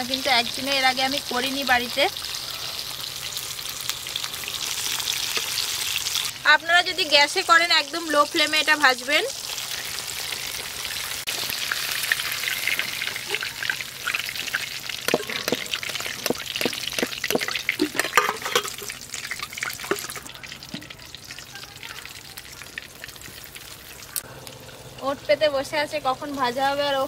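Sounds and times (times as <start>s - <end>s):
chicken deep-frying in hot oil: 0.0s - 27.0s
oil crackling and popping: 1.9s - 6.4s, 8.2s - 24.8s.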